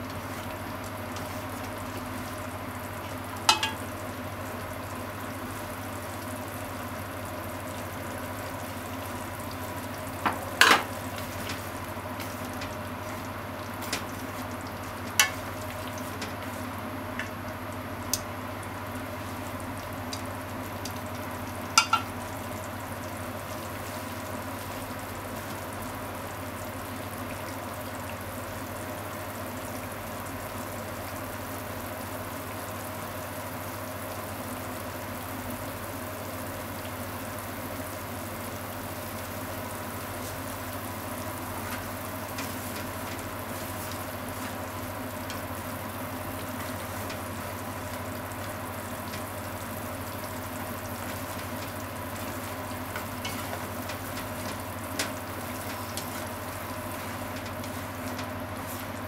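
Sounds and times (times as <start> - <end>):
constant low hum: 0.0 - 26.1
liquid bubbling and sizzling in pan: 0.0 - 59.0.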